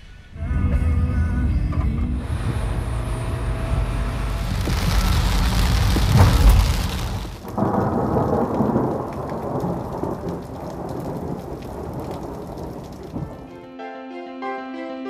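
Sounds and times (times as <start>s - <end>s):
heavy rain with deep rumble: 2.2s - 13.6s
raindrop taps: 4.4s - 13.6s.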